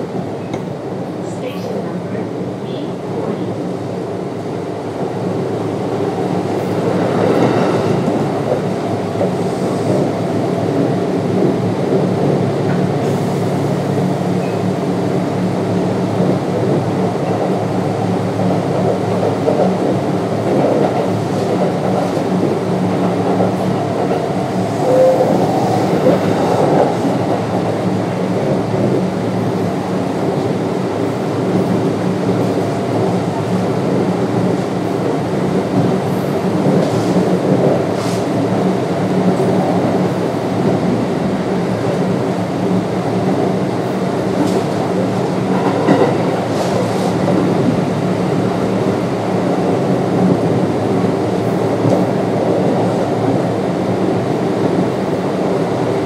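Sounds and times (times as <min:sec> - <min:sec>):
electric train traction humming: 0:12.2 - 0:35.1.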